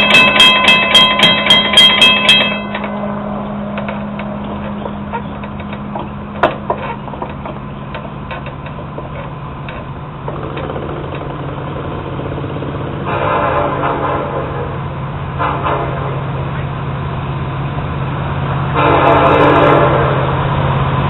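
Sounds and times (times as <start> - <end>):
railroad crossing bell ringing: 0.0 - 9.0
low engine hum: 1.8 - 21.0.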